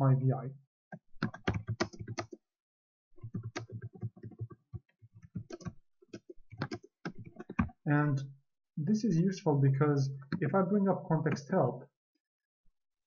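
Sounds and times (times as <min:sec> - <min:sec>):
computer keyboard typing: 0:00.9 - 0:02.4, 0:03.2 - 0:07.8.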